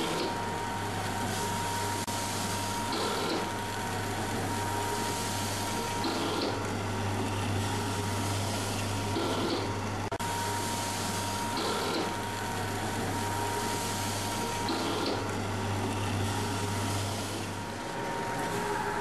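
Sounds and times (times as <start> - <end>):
packing machine motor hum: 0.0 - 19.0.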